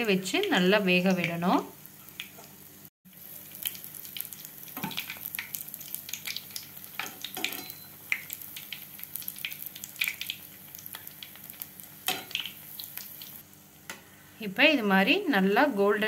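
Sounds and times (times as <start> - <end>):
batter sizzling in oil: 0.0 - 13.8
spatula clacking: 12.1 - 12.6.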